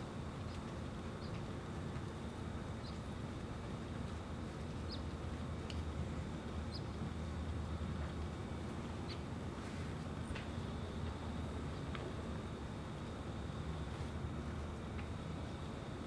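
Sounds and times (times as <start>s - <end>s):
low outdoor rumble: 0.0s - 16.0s
small birds chirping: 0.4s - 1.5s, 2.7s - 3.2s, 4.6s - 7.1s, 8.9s - 9.3s.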